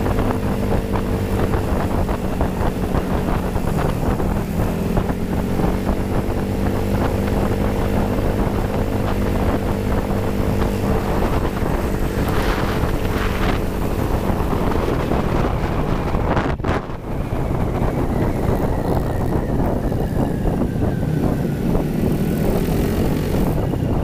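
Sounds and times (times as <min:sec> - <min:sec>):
scooter engine drone: 0:00.0 - 0:24.0
wind rushing over microphone: 0:00.0 - 0:24.0.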